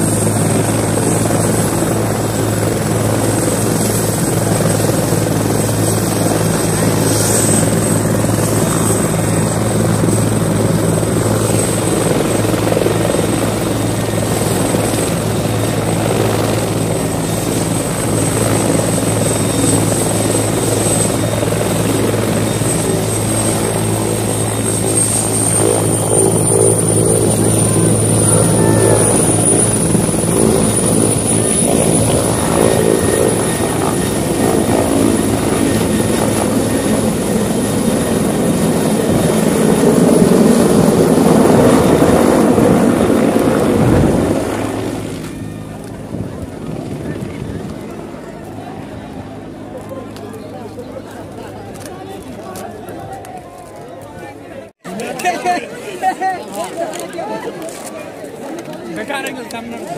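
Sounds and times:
high turbine whine: 0.0s - 47.8s
helicopter engine and rotor: 0.0s - 59.9s.

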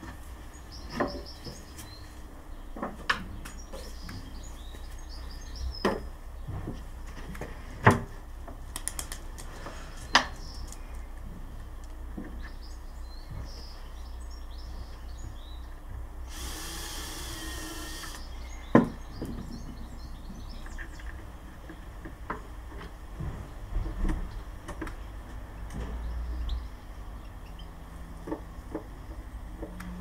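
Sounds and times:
cordless drill driving screw: 16.3s - 18.2s.

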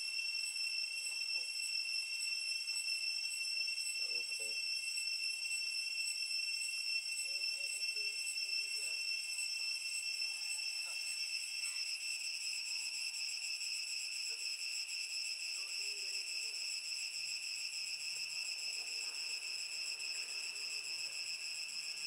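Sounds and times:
insects shrilling: 0.0s - 22.0s.

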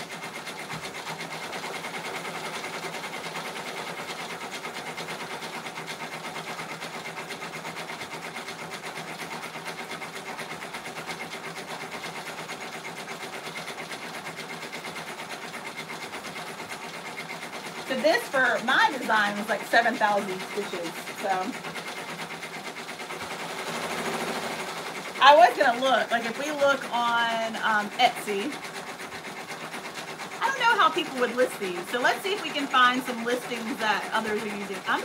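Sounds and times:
embroidery machine needle rattle: 0.0s - 35.0s.

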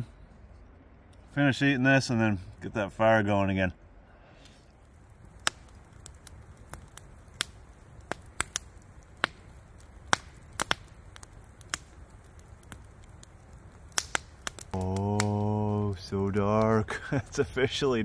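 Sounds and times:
low hiss of burning logs: 0.0s - 18.0s
campfire crackling and popping: 3.8s - 18.0s.

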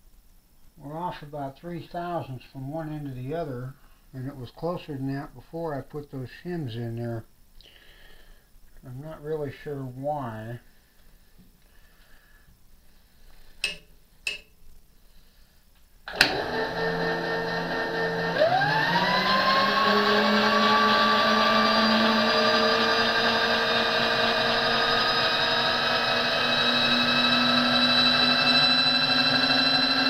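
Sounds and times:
electric motor whine: 16.1s - 30.0s.

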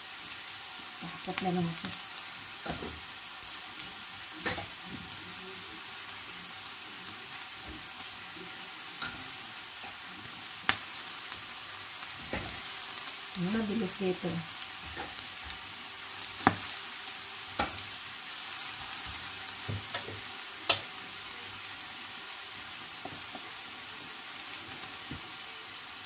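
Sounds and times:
meat sizzling on a grill: 0.0s - 26.0s.

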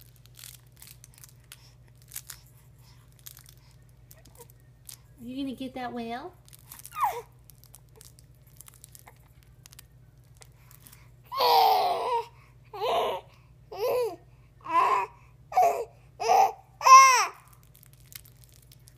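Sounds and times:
baby babbling: 6.9s - 7.3s, 11.3s - 17.4s.

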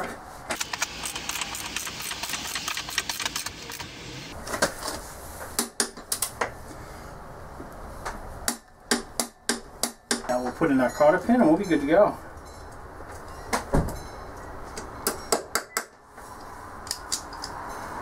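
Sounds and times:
socket wrench ratchet clicking: 0.6s - 3.9s.

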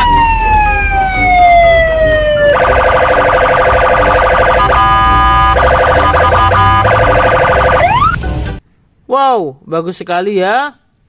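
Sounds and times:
police siren: 0.0s - 8.2s.

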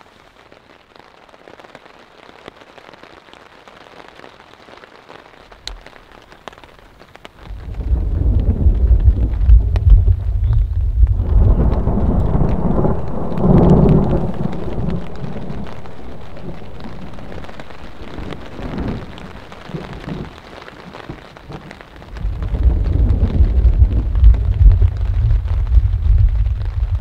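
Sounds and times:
rain pattering on tarp: 0.0s - 27.0s
thunder rolling: 7.4s - 20.4s, 22.1s - 27.0s.

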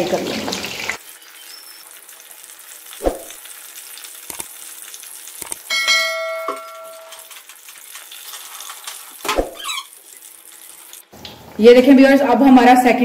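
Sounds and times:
bread sizzling in oil: 0.0s - 11.6s
bell-like ding: 5.7s - 7.2s.

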